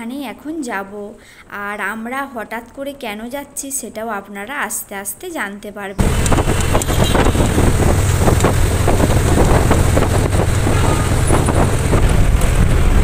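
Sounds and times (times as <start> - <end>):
bus engine and road rumble: 6.0 - 13.0
light rattling: 6.0 - 13.0
wind noise: 6.0 - 13.0.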